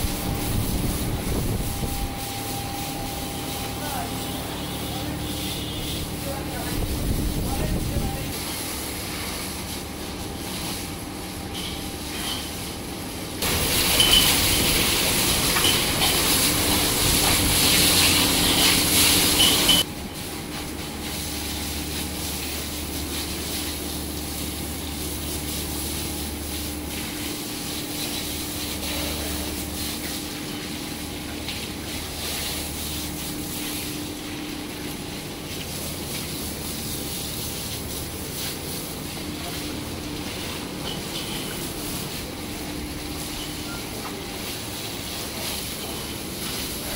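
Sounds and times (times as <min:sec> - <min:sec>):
hose water spraying: 0:00.0 - 0:46.9.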